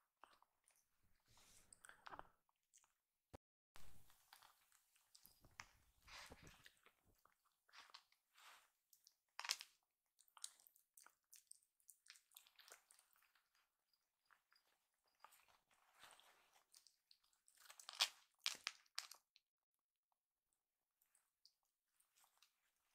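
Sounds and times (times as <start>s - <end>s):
kitten licking and swallowing: 10.2s - 13.7s.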